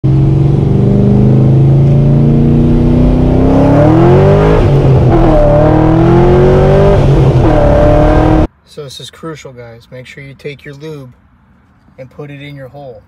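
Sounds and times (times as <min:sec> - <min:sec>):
car engine revving: 0:00.0 - 0:08.5.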